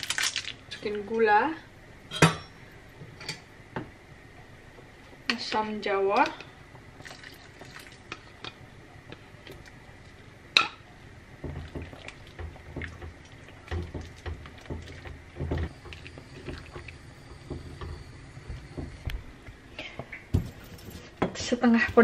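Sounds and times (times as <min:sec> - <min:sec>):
spatula stirring and scraping pan: 0:20.4 - 0:22.0.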